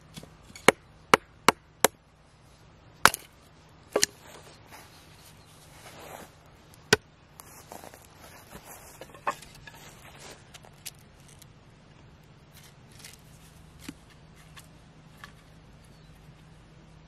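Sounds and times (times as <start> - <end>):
wooden sticks clacking: 3.9 - 4.3, 9.0 - 11.5.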